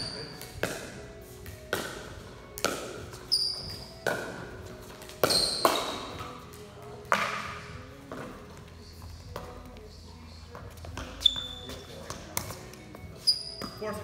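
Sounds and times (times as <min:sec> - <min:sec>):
ball bouncing off floor: 0:00.0 - 0:06.3, 0:07.0 - 0:08.4
short high squeaks: 0:13.2 - 0:13.7.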